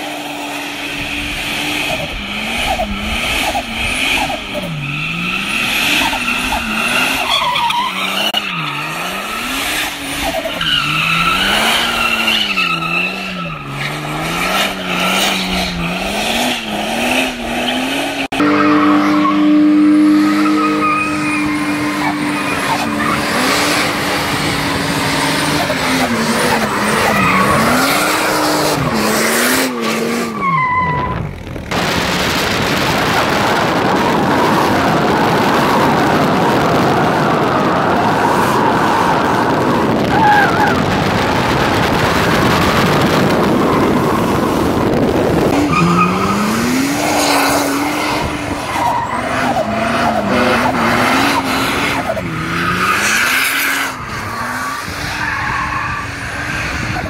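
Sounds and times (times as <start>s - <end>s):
engine revving: 0.0s - 55.2s
wind and road noise: 0.0s - 57.0s
tyres screeching: 1.6s - 16.8s, 17.5s - 31.7s.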